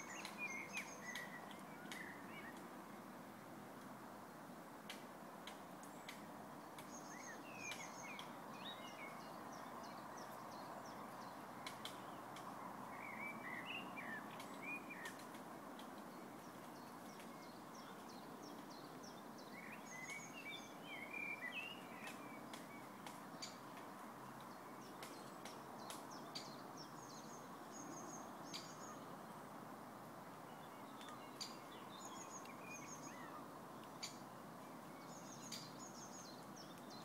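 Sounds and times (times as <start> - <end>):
faint ticks: 14.3 - 17.5.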